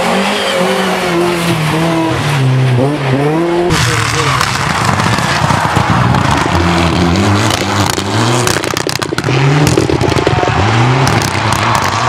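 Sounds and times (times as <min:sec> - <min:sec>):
car engine revving through gears: 0:00.0 - 0:12.0
exhaust crackling pops: 0:03.7 - 0:12.0.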